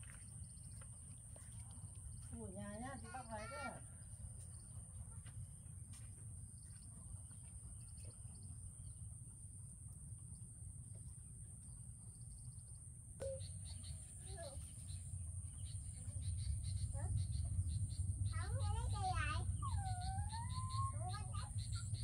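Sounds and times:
low steady rumble: 0:00.0 - 0:22.0
high chirping trills: 0:13.2 - 0:22.0.

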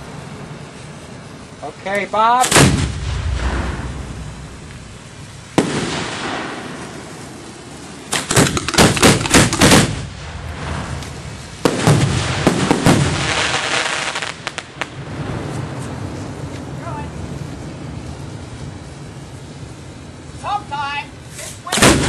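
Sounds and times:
firework crackling: 0:00.0 - 0:22.0
firework sharp cracks: 0:02.3 - 0:20.3, 0:21.2 - 0:22.0
firework mortar launch: 0:02.4 - 0:17.1, 0:21.2 - 0:22.0.

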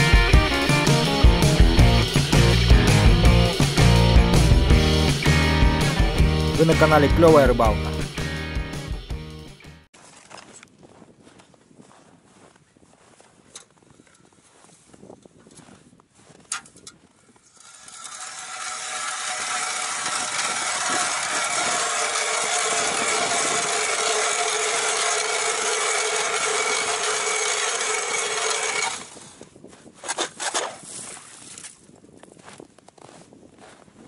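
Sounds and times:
ice auger grinding through ice: 0:17.4 - 0:29.4.

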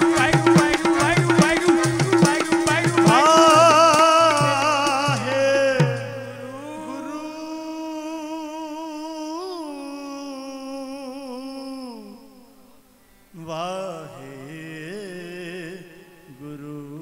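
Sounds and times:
tabla strokes: 0:00.0 - 0:06.8
man singing a long note: 0:00.0 - 0:12.8.

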